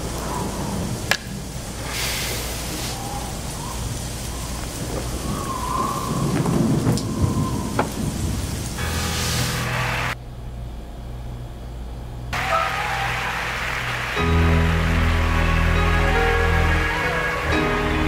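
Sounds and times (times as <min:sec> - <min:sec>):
steady rain: 0:00.0 - 0:10.2, 0:12.4 - 0:18.0
thunder rumbling: 0:00.0 - 0:10.2
sharp thunder cracks: 0:04.8 - 0:10.2.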